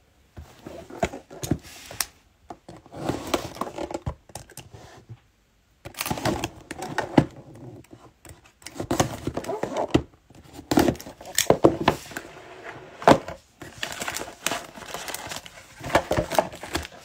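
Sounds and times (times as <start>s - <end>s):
cardboard box scraping and rustling: 2.8s - 3.9s.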